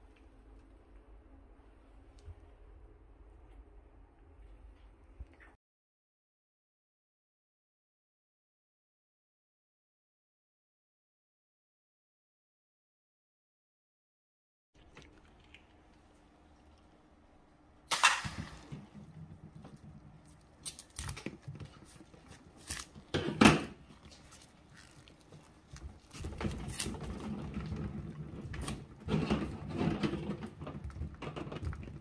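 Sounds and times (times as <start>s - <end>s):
squishy rustling of gel beads: 23.9s - 27.2s.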